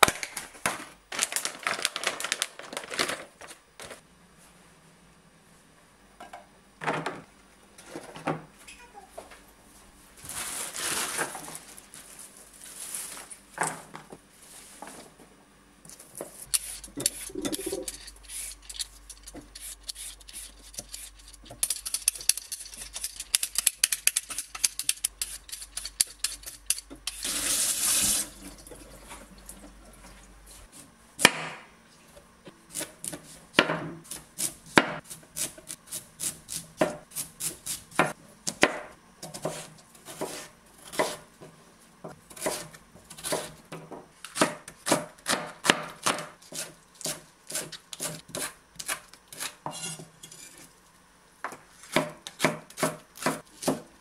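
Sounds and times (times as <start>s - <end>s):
utensils and dishes clattering: 16.8s - 19.4s.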